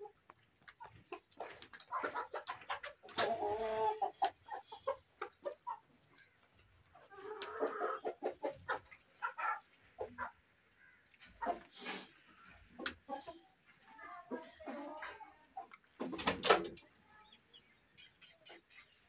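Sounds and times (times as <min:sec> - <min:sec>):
chickens clucking: 0:00.0 - 0:19.0.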